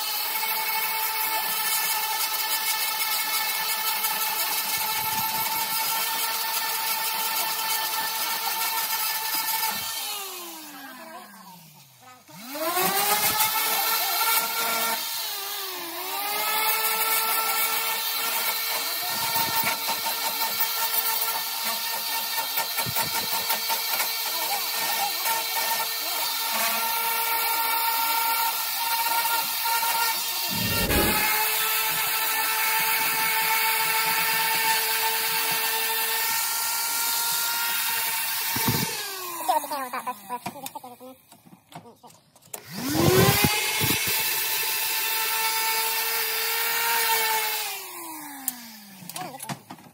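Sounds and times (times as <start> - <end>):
orbital sander on metal: 3.9 - 41.2, 42.7 - 48.0
orbital sander winding down: 9.8 - 17.7, 27.3 - 34.0, 42.6 - 49.1
orbital sander motor whine: 30.0 - 32.2, 42.6 - 49.0
sander pad hissing on metal: 30.3 - 31.5.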